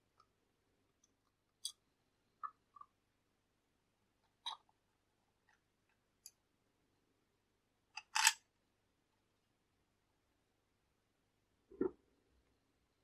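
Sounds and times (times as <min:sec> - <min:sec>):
plastic and metal parts clicking: 0:08.0 - 0:08.4.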